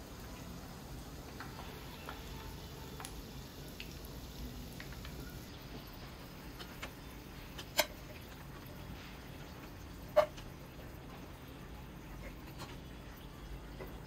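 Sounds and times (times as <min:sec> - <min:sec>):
oil bubbling: 0:00.0 - 0:14.0
oil popping: 0:01.2 - 0:08.8.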